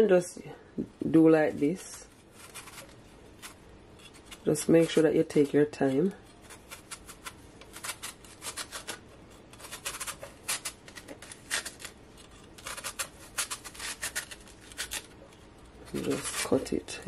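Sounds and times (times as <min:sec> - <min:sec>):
knife slicing cabbage: 0:02.3 - 0:05.5, 0:06.3 - 0:15.1.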